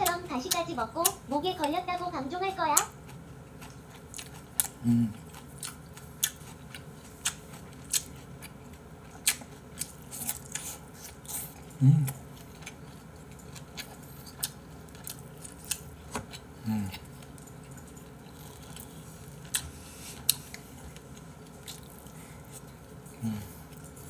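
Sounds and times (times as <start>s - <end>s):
wet chewing and lip-smacking: 2.7s - 16.5s
person humming low: 4.8s - 5.2s, 11.8s - 12.2s, 23.2s - 23.6s.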